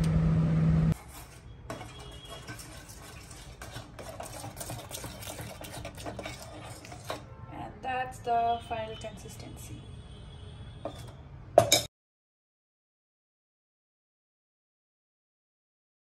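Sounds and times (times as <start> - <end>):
microwave oven humming: 0.0 - 1.0
utensil scraping a steel pot: 1.0 - 7.3, 10.8 - 11.2.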